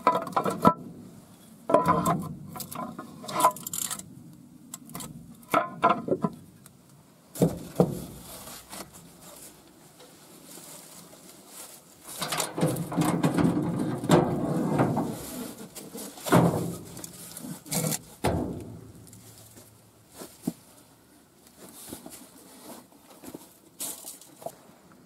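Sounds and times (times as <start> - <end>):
metal muffler scraping on frame: 0.0 - 4.0, 12.0 - 20.4.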